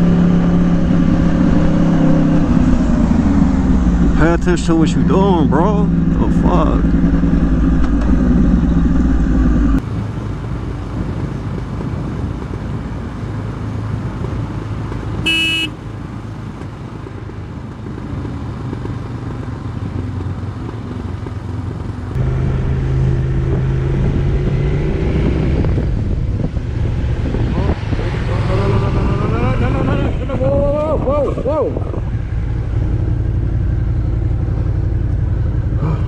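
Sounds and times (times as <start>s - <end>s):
motorcycle engines running: 0.0s - 36.0s
wind and road noise: 0.0s - 36.0s
vehicle horn toot: 15.2s - 15.8s.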